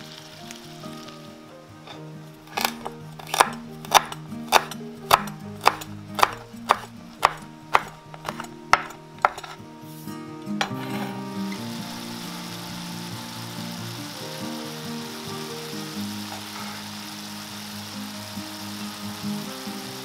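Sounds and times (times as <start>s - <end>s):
knife chopping on wooden board: 2.5s - 9.6s.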